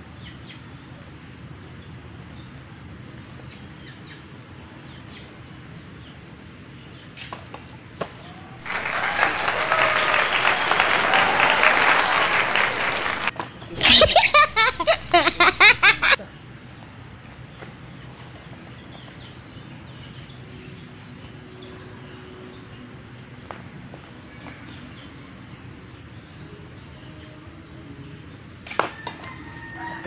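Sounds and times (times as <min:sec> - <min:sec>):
crowd applauding: 0:08.6 - 0:13.3
laughter: 0:13.7 - 0:16.3.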